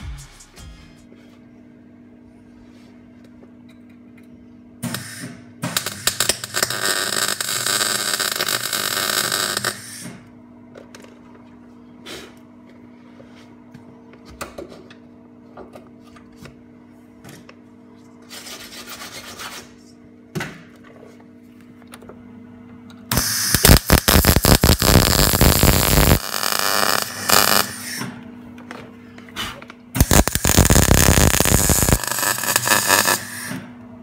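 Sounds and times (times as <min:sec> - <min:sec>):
steady low hum: 0:00.0 - 0:06.8
welder arc crackling: 0:05.8 - 0:10.0, 0:23.1 - 0:28.0, 0:30.0 - 0:33.5.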